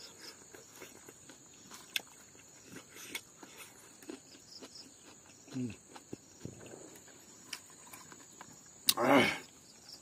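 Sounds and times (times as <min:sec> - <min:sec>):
chewing clicks and lip smacks: 0:00.1 - 0:09.0.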